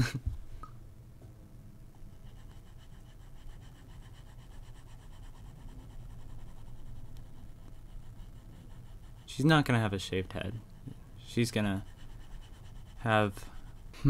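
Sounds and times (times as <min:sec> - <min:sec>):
low steady hum: 0:00.0 - 0:14.0
stylus scratching on tablet: 0:02.0 - 0:14.0.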